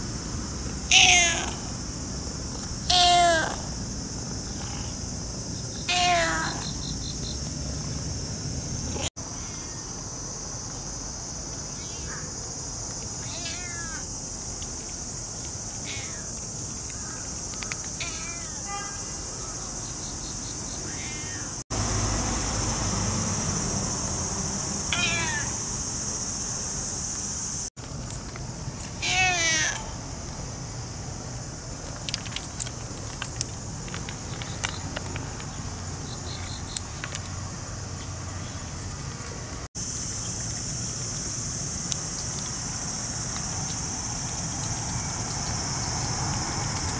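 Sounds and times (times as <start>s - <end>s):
insects chorus: 0.0s - 46.9s
cat meowing: 0.9s - 1.7s, 2.9s - 3.7s, 5.9s - 6.7s, 13.2s - 14.0s, 15.8s - 16.3s, 18.0s - 19.1s, 20.8s - 21.6s, 24.9s - 25.6s, 29.0s - 29.9s
crunching clicks: 14.5s - 18.2s, 31.7s - 37.6s
cats eating dry food: 31.7s - 35.6s.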